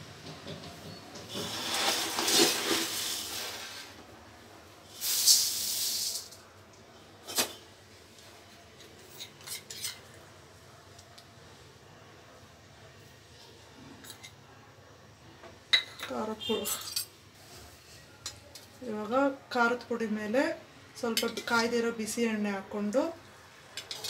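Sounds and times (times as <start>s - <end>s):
puffed rice pouring into a pan: 1.3s - 4.0s, 4.9s - 6.4s.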